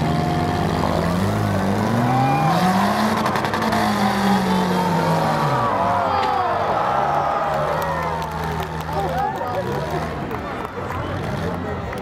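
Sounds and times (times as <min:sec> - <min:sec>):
car engine revving hard: 0:00.0 - 0:05.7.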